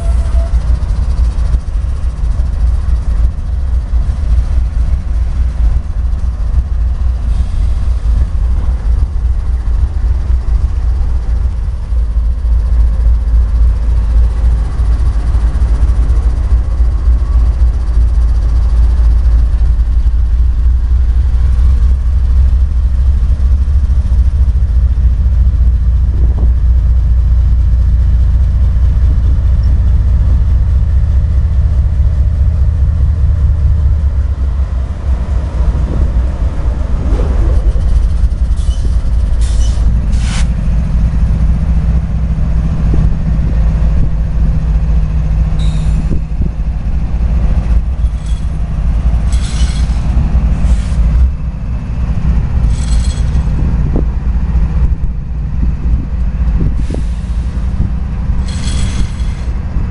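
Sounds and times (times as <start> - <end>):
train wheels squealing and clanking: 0.0 - 1.5, 36.8 - 40.6, 45.6 - 46.3, 47.9 - 51.3, 52.6 - 53.7, 56.8 - 57.8, 58.4 - 59.8
diesel locomotive engine drone: 0.0 - 59.9.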